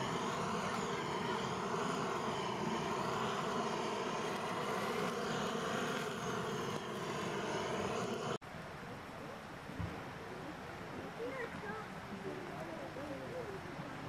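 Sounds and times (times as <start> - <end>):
blowtorch flame hissing: 0.0 - 8.4.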